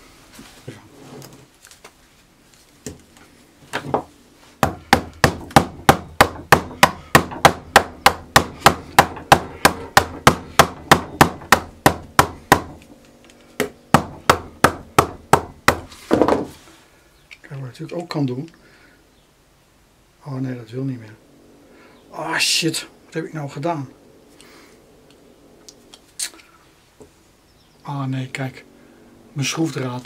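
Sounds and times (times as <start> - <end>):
hammer blows on metal and wood: 4.6 - 12.8.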